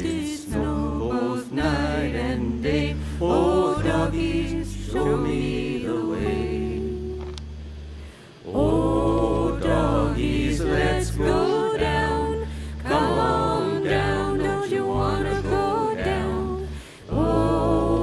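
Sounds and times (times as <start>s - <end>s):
voices singing in harmony: 0.0s - 7.6s, 8.3s - 18.0s
low bass line: 8.6s - 18.0s.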